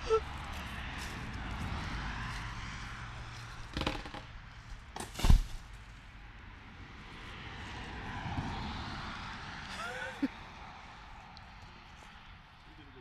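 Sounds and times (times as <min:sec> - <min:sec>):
outdoor background noise: 0:00.0 - 0:13.0
knocks: 0:03.7 - 0:04.3.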